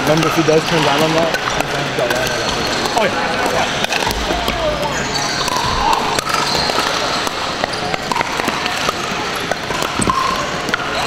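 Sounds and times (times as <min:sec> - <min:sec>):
paddles striking plastic balls: 0:00.0 - 0:11.0
steady hubbub: 0:00.0 - 0:11.0.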